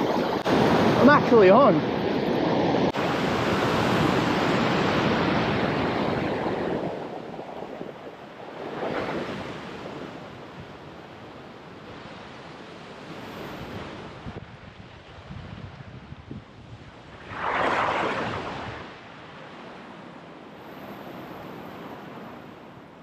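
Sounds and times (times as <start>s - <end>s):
ocean swell surging against rocks: 17.0s - 22.2s.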